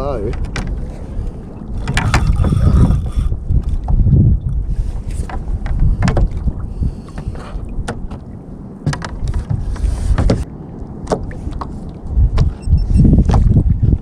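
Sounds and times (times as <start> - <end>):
water lapping against hull: 0.0 - 14.0
wind buffeting microphone: 0.0 - 14.0
rod and reel knocks and clicks: 1.8 - 3.9.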